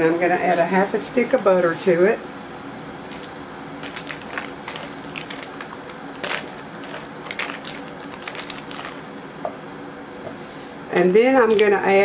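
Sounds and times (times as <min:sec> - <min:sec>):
plastic wrapper crinkling: 0:03.1 - 0:09.3.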